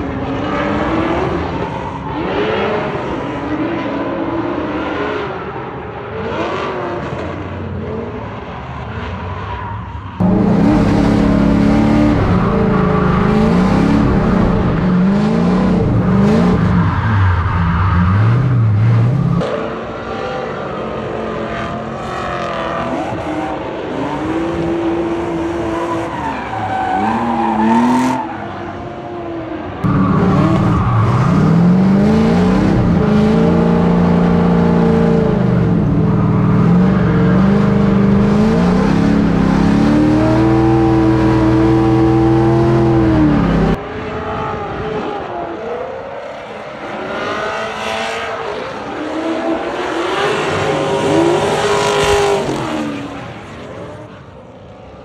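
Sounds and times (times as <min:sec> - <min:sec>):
car engine revving hard: 0:10.2 - 0:19.5, 0:29.8 - 0:43.8.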